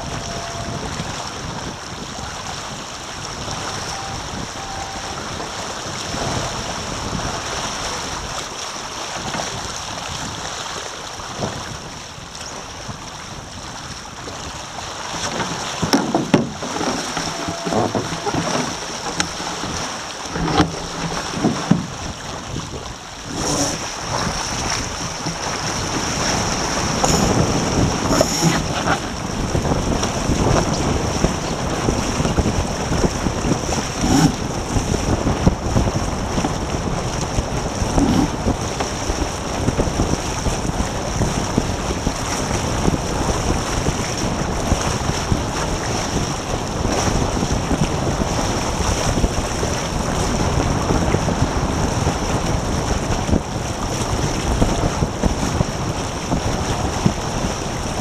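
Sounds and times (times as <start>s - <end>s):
wind buffeting microphone: 0.0s - 10.5s, 11.1s - 58.0s
water rushing along hulls: 0.0s - 58.0s
boat rigging knocks: 15.1s - 22.1s, 23.3s - 23.9s, 26.8s - 29.2s, 33.8s - 34.6s, 37.9s - 39.0s.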